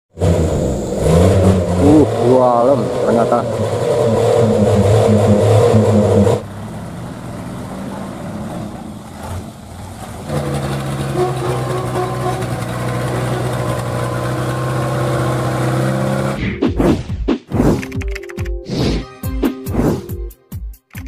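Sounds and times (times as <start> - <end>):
diesel truck engine revving: 0.1 - 16.4.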